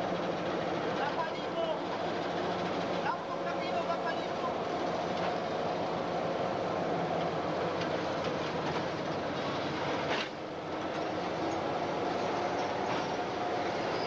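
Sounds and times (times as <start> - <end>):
train running drone: 0.0 - 14.0.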